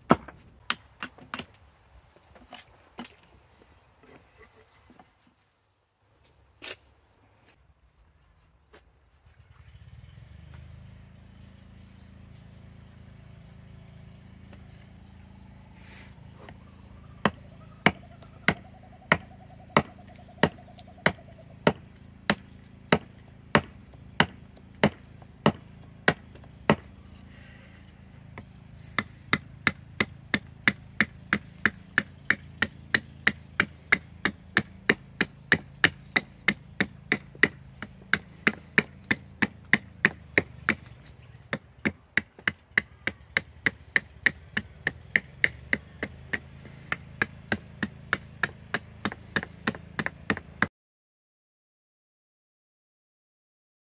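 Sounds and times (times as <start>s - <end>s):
adze chopping wood: 0.0s - 1.7s, 17.2s - 27.6s, 28.3s - 50.7s.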